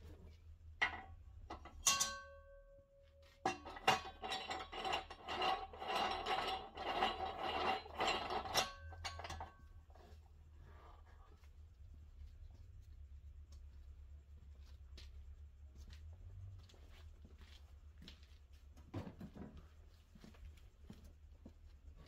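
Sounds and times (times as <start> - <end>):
metal clanking and scraping: 0.0 - 10.9
metallic rattling and scraping: 0.0 - 11.2
metal knock with ringing tone: 1.6 - 2.8.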